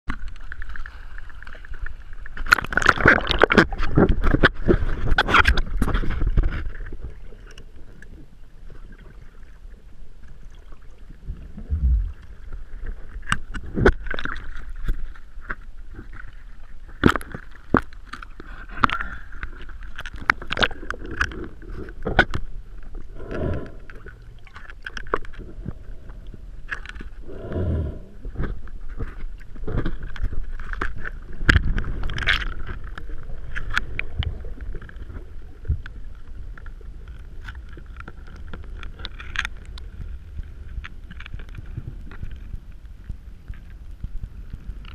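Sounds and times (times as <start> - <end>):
sea water sloshing and splashing: 0.1 - 42.6
underwater gurgling: 0.1 - 44.9
water lapping: 23.0 - 36.2.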